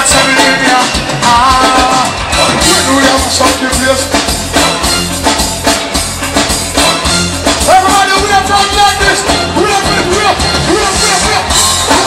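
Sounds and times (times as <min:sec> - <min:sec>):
person singing: 0:00.0 - 0:04.8
live reggae band playing: 0:00.0 - 0:12.0.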